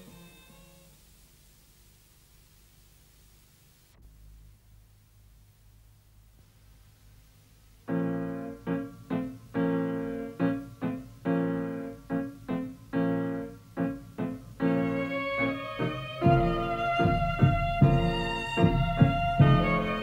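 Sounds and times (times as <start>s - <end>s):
piano chords: 7.8s - 20.0s
violin: 14.6s - 20.0s.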